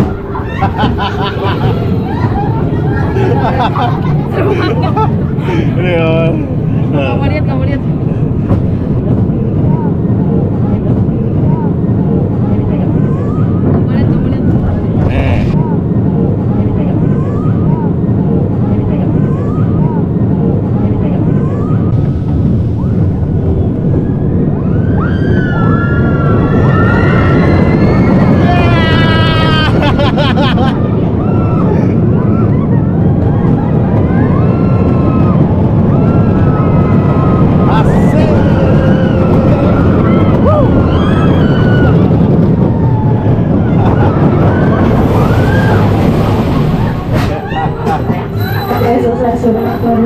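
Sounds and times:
roller coaster car rumbling on track: 0.0s - 50.0s
wind buffeting microphone: 0.0s - 50.0s
riders screaming: 24.8s - 29.9s, 33.4s - 48.0s
high gliding squeals: 44.1s - 50.0s.

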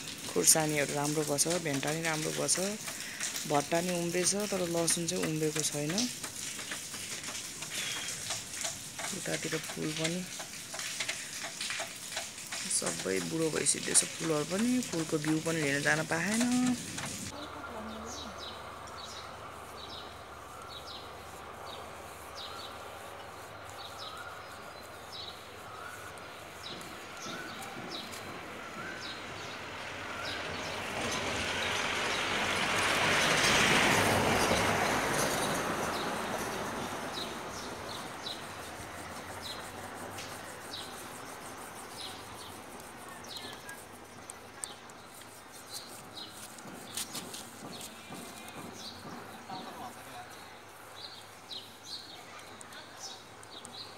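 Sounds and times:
birds chirping: 0.0s - 53.9s
broad rushing noise: 18.1s - 51.6s.

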